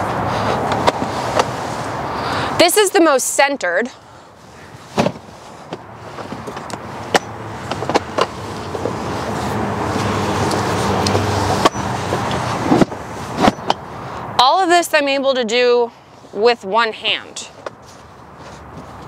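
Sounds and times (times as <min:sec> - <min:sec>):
rushing noise with low hum: 0:00.0 - 0:14.8.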